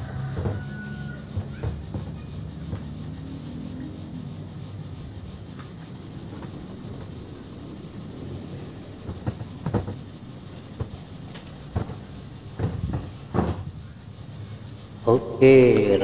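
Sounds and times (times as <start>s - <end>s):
steady low rumble: 2.6s - 16.0s
metal clunks and knocks: 9.1s - 13.8s.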